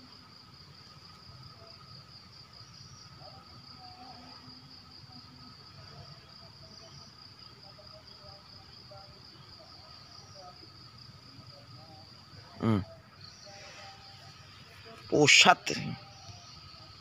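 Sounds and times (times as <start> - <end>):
insects chirring: 0.0 - 17.0.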